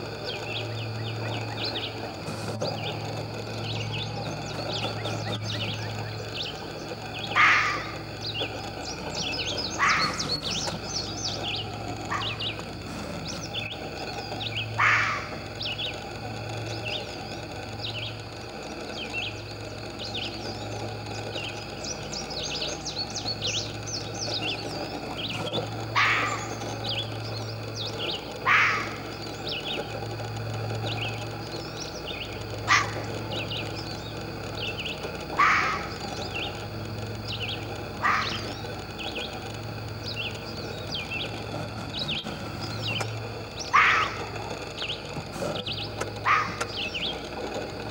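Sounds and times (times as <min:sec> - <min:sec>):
songbirds chirping: 0:00.0 - 0:47.9
fox kit high barks: 0:07.2 - 0:08.3, 0:09.1 - 0:11.4, 0:12.0 - 0:12.6, 0:14.6 - 0:15.7, 0:25.9 - 0:26.8, 0:28.0 - 0:29.4, 0:32.6 - 0:33.4, 0:35.3 - 0:36.3, 0:37.9 - 0:38.8, 0:43.6 - 0:44.4, 0:46.2 - 0:46.9.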